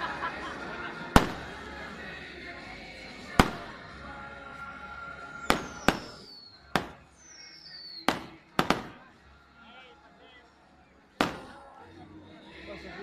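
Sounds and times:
firecracker bangs: 0:01.1 - 0:01.6, 0:03.2 - 0:03.9, 0:05.4 - 0:07.3, 0:07.9 - 0:09.1, 0:11.2 - 0:11.6
falling firework whistles: 0:05.4 - 0:08.5.

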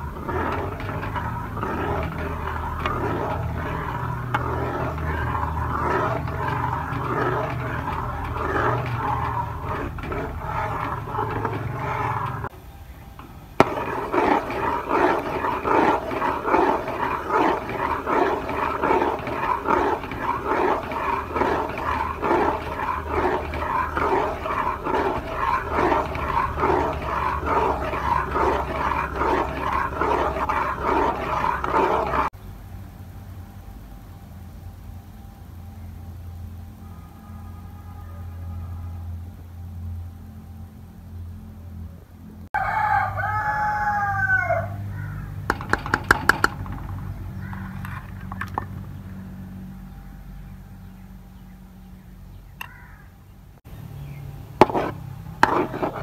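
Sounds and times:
metal spatula scraping pan: 0:00.0 - 0:12.5, 0:13.6 - 0:32.4, 0:45.5 - 0:48.9, 0:54.6 - 0:56.0
burner humming: 0:00.0 - 0:32.3.

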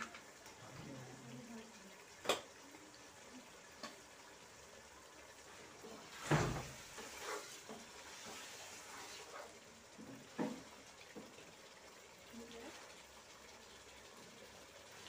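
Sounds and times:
stirring thick sauce in metal pot: 0:05.6 - 0:11.4.

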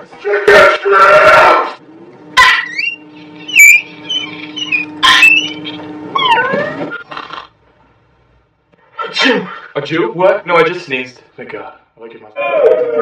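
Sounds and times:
steady low hum: 0:01.8 - 0:12.0.

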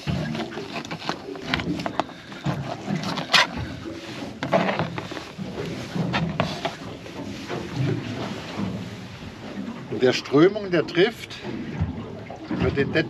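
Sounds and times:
knife scraping fish on board: 0:00.1 - 0:03.6, 0:04.2 - 0:06.9.

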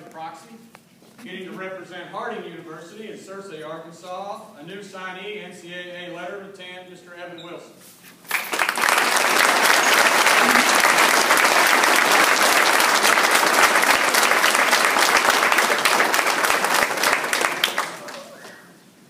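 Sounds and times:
audience applauding: 0:08.3 - 0:18.6.

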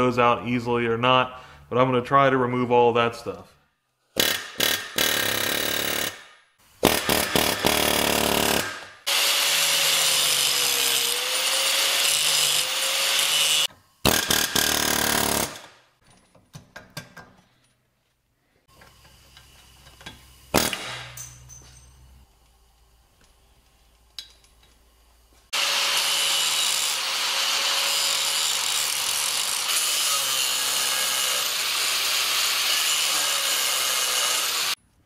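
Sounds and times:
power tool running under load: 0:25.5 - 0:34.8.

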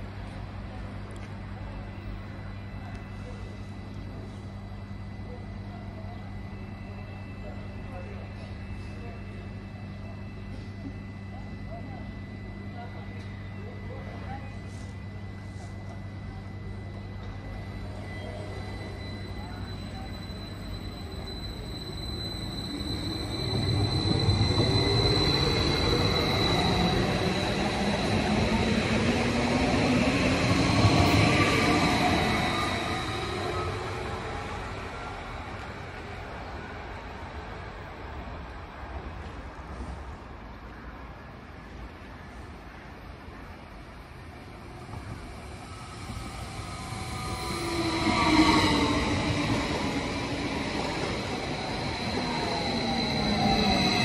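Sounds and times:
steady high whine: 0:00.0 - 0:36.7, 0:43.6 - 0:54.0
electric train passing: 0:11.3 - 0:54.0
train wheels rumbling on rails: 0:44.2 - 0:54.0.

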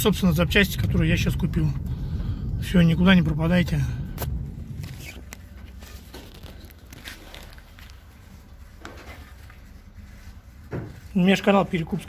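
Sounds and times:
low steady hum: 0:00.0 - 0:12.0
faint knocks and shuffles: 0:04.3 - 0:12.0.

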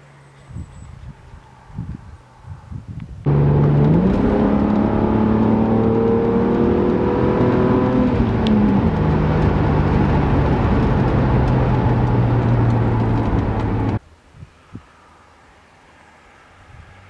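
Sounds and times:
car engine heard from cabin: 0:03.3 - 0:14.0.

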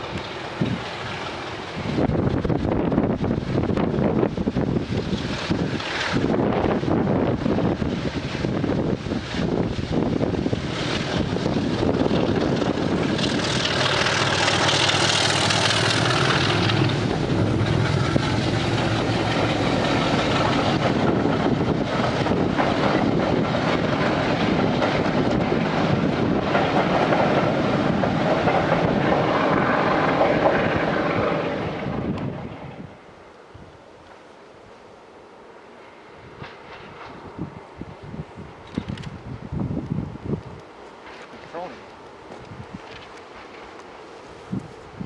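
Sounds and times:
train coaches rumbling over rails: 0:00.0 - 0:33.2
diesel locomotive engine: 0:00.0 - 0:45.0.

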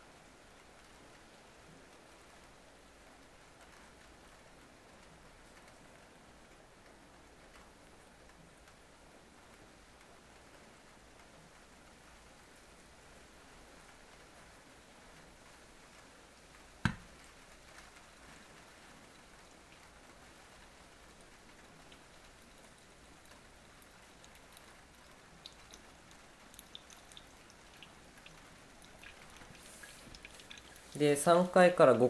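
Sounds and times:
water pouring onto coffee grounds: 0:20.5 - 0:31.6
small ticks: 0:20.6 - 0:31.0.

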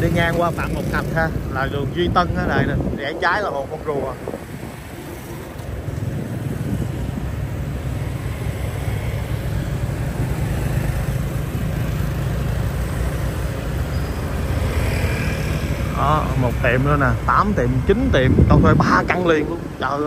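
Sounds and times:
road noise: 0:00.0 - 0:20.0
vehicle engines running: 0:00.0 - 0:20.0.

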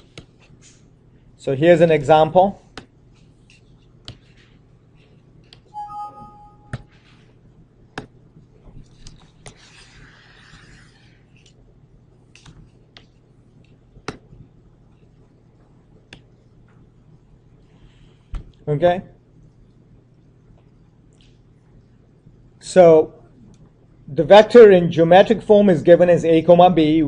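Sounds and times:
low room hum: 0:00.0 - 0:27.0
short tone: 0:05.7 - 0:06.9.

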